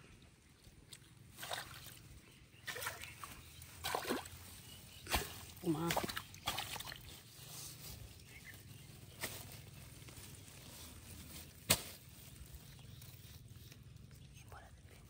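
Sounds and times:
hands rustling through leaves: 0:03.0 - 0:14.7.

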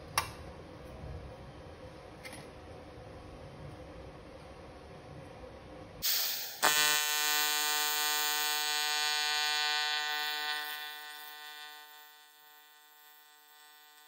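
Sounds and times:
high-pitched welding arc buzz: 0:06.0 - 0:14.0
welding arc hiss: 0:06.0 - 0:14.0.

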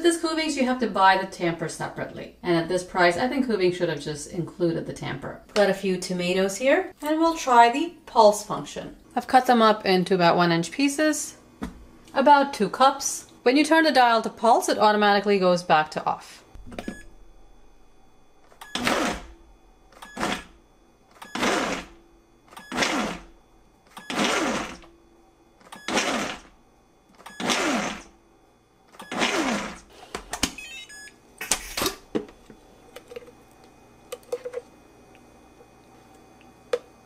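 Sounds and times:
blender pulsing chopping: 0:18.6 - 0:19.4, 0:20.0 - 0:20.6, 0:21.2 - 0:25.0, 0:25.6 - 0:28.2, 0:28.9 - 0:30.3.

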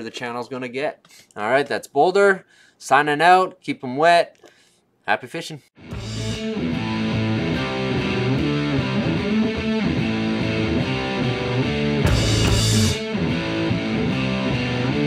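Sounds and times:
guitar and drums music: 0:05.8 - 0:15.0.

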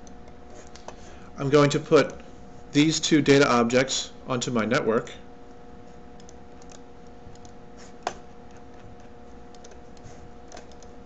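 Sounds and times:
faint steady hum: 0:00.0 - 0:11.0
computer mouse clicks: 0:06.2 - 0:11.0.

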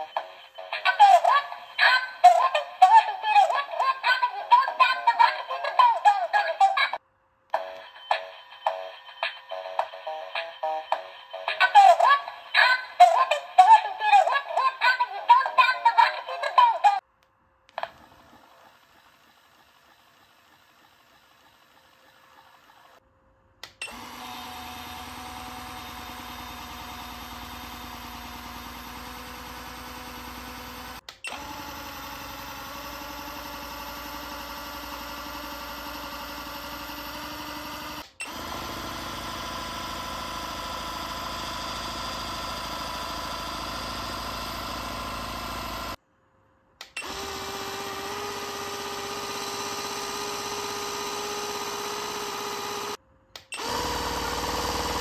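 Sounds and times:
toy motor buzzing whine: 0:00.0 - 0:06.9, 0:17.8 - 0:23.0, 0:23.8 - 0:46.0, 0:46.9 - 0:55.0.

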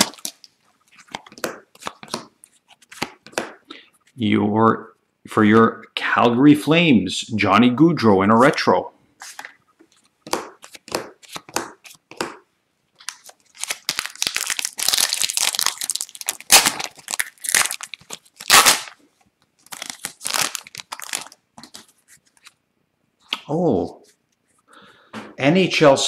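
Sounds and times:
foil wrapper crinkling: 0:00.0 - 0:01.2, 0:13.0 - 0:19.0, 0:19.6 - 0:22.5
trading cards rustling: 0:09.2 - 0:12.4, 0:13.0 - 0:19.0, 0:19.6 - 0:22.6
foil wrapper ripping: 0:13.0 - 0:19.0, 0:19.6 - 0:21.4.

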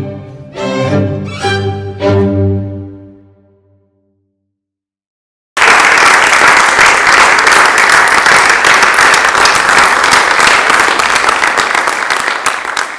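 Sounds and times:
audience applause: 0:05.6 - 0:12.9.

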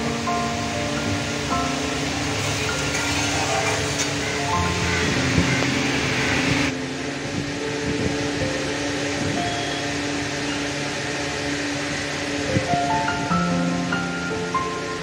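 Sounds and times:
quiet background music: 0:00.0 - 0:15.0
oil hissing in a pan: 0:01.0 - 0:06.7.

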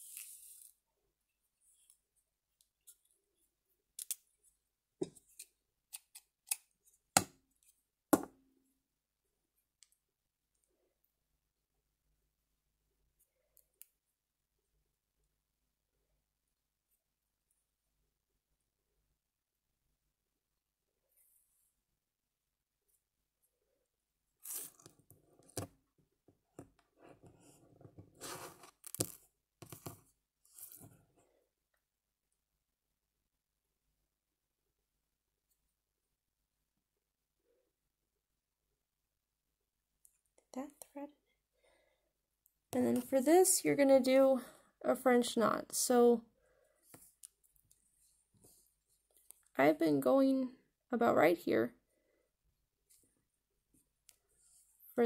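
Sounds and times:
rustling scrapes of felt: 0:00.0 - 0:00.8.

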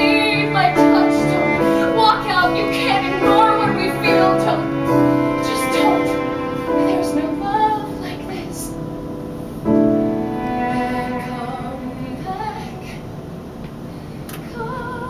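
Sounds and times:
woman singing a ballad: 0:00.0 - 0:08.8, 0:10.6 - 0:13.0, 0:14.3 - 0:15.0
piano accompaniment: 0:00.0 - 0:13.9.

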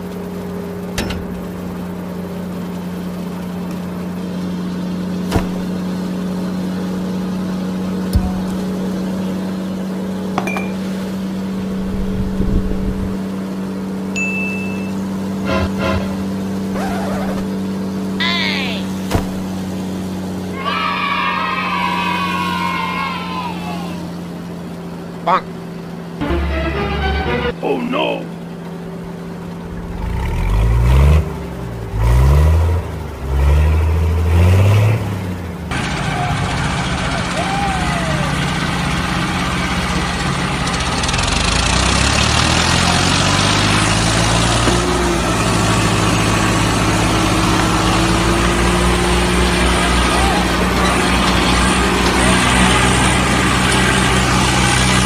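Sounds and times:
high ringing ding: 0:10.4 - 0:10.8, 0:14.1 - 0:15.1
wheels spinning in sand: 0:35.7 - 0:55.0.

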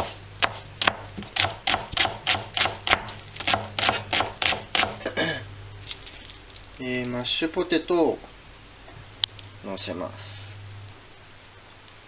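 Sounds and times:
knife chopping on cutting board: 0:00.0 - 0:05.0.

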